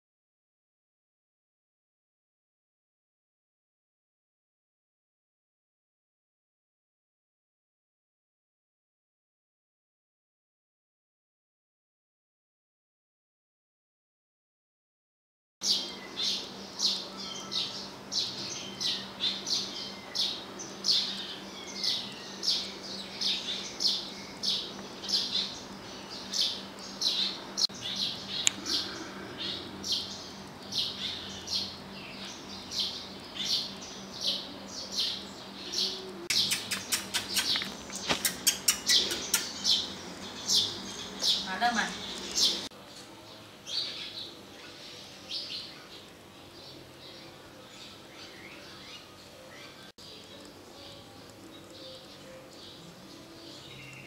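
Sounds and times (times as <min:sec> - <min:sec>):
bird chirping: 0:15.6 - 0:54.0
steady low hum: 0:15.6 - 0:54.0
rapid sharp clicks: 0:36.3 - 0:39.6.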